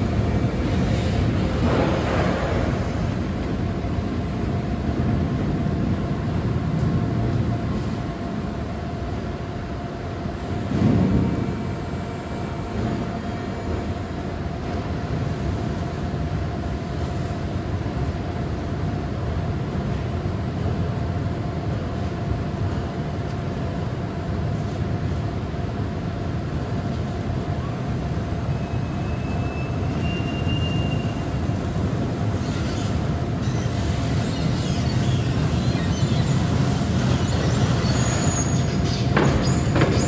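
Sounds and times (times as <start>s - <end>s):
machinery rumble and whine: 0.0s - 40.0s.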